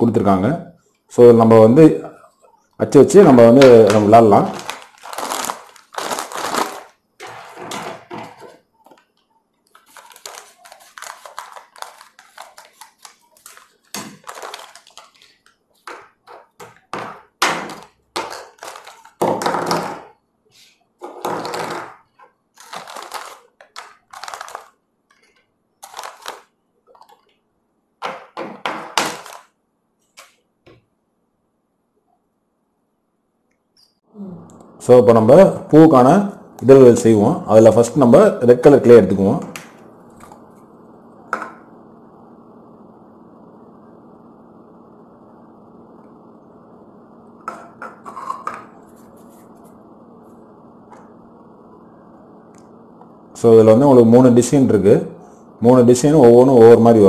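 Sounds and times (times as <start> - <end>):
plastic bag rustling: 3.9 - 9.0, 9.7 - 16.8, 17.7 - 19.2, 21.4 - 27.3.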